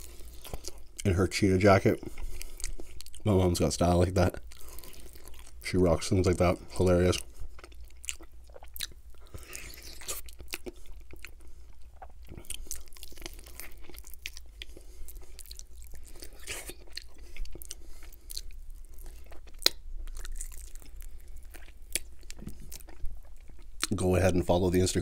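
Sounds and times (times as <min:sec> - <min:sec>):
crunchy bites and chewing: 0:07.5 - 0:23.9.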